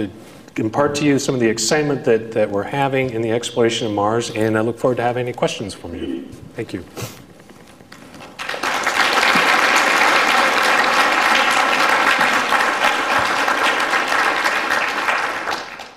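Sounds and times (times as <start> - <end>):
audience applauding: 8.2 - 15.9.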